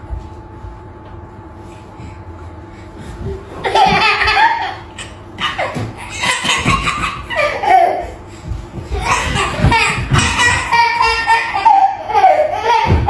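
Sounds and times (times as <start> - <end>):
toddler laughing: 3.5 - 8.2, 8.9 - 13.0.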